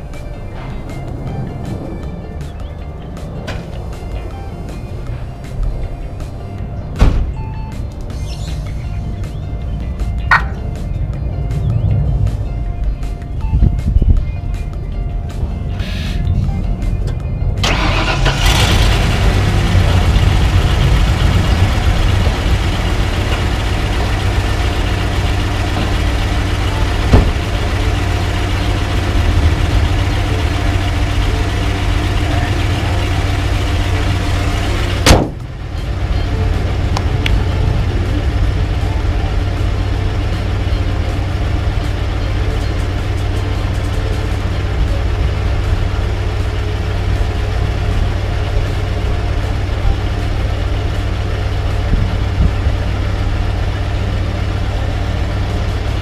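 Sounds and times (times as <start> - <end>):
car engine idling: 0.0 - 13.7, 14.3 - 56.0
car hood slammed shut: 7.0 - 7.3, 27.1 - 27.4, 35.0 - 35.4.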